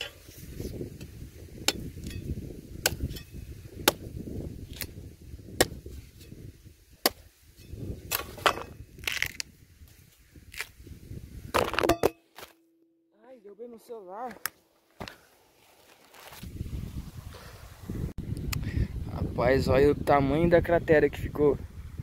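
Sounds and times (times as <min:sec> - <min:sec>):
hoe striking dry soil: 0:00.0 - 0:06.4, 0:07.0 - 0:09.4, 0:11.5 - 0:12.8
dull thuds and scraping of earth: 0:00.0 - 0:10.8, 0:11.4 - 0:12.6, 0:14.2 - 0:16.7.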